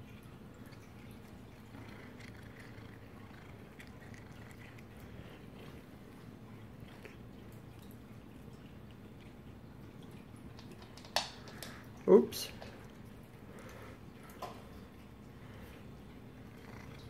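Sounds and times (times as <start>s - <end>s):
cats chewing and licking: 0.0s - 17.0s
low steady hum: 0.0s - 17.0s.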